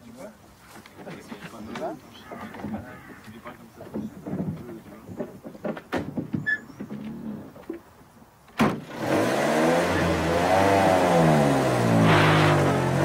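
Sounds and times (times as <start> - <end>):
car door slamming: 8.6 - 8.9
car engine starting and revving: 8.8 - 13.0.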